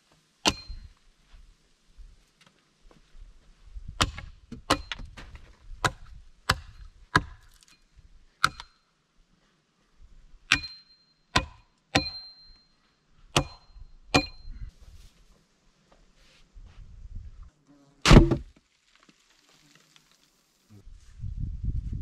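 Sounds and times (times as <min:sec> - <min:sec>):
axe chopping wood: 0:00.4 - 0:00.8, 0:04.0 - 0:05.2, 0:05.8 - 0:07.5, 0:08.4 - 0:08.7, 0:10.5 - 0:10.8, 0:11.4 - 0:12.3, 0:13.3 - 0:14.5, 0:18.0 - 0:18.5
short metallic ring: 0:10.6 - 0:11.3, 0:12.0 - 0:12.8.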